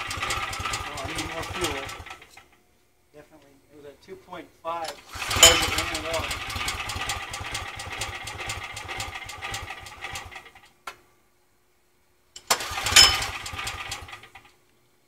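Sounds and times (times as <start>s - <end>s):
small engine running unevenly: 0.0s - 2.4s, 5.0s - 10.7s, 12.4s - 14.5s.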